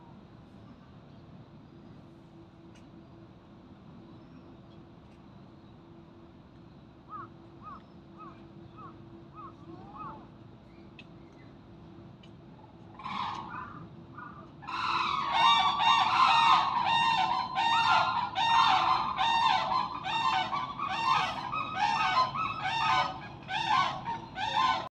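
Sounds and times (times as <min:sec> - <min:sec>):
gibbon hooting calls: 0:13.1 - 0:24.9.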